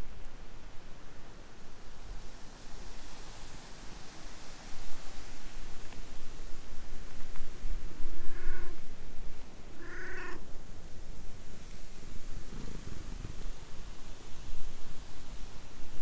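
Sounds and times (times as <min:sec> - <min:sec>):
cat meowing: 0:08.2 - 0:08.8, 0:09.8 - 0:10.4.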